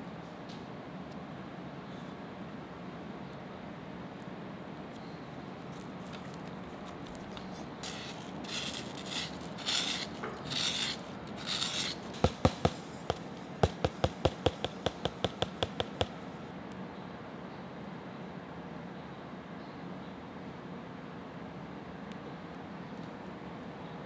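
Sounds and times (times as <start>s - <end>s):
fine grains pouring: 6.1s - 15.0s.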